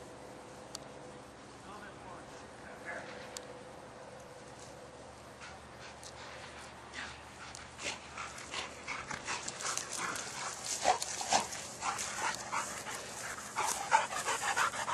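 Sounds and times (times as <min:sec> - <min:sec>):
dog panting: 0:05.4 - 0:14.9.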